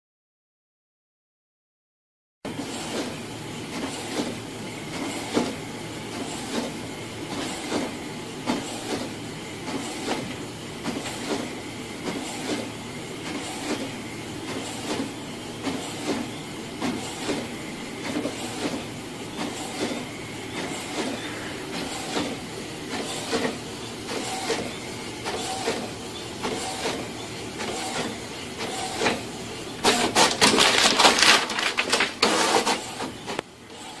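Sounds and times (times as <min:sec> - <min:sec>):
printer mechanical hum: 0:02.5 - 0:34.0
printer clacking: 0:16.8 - 0:33.4
rustling and clattering: 0:30.0 - 0:32.8.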